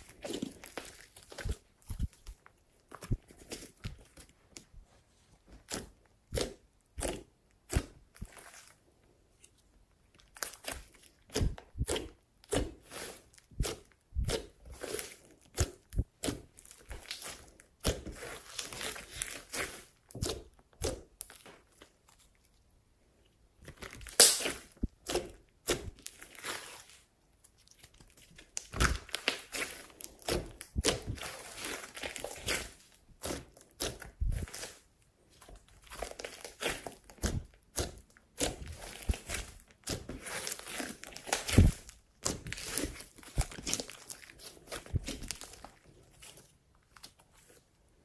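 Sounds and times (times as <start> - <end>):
slime crackling and popping: 10.2 - 22.0, 23.7 - 27.0, 27.6 - 34.8, 35.5 - 47.2.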